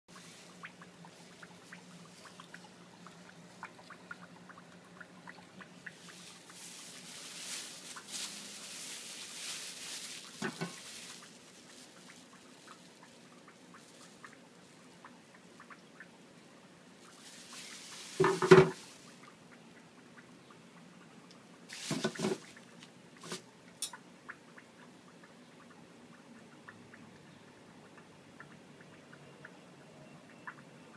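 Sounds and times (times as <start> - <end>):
light ticks and drips: 0.1 - 18.2, 18.8 - 30.9
plastic bag crinkling: 5.8 - 14.9, 17.0 - 19.3, 21.7 - 23.4.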